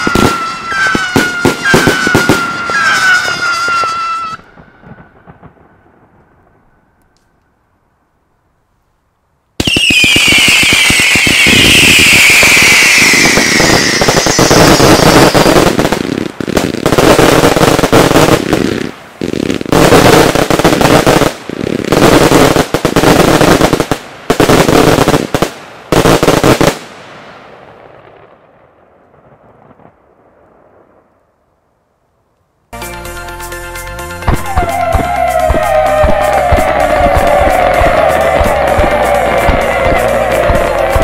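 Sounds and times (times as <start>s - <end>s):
fireworks whistles: 0.0s - 5.8s, 9.6s - 26.8s, 34.2s - 41.0s
fireworks bangs: 0.0s - 7.3s, 9.6s - 31.3s, 34.2s - 41.0s
fireworks crackling: 0.0s - 7.7s, 9.6s - 31.4s, 34.2s - 41.0s.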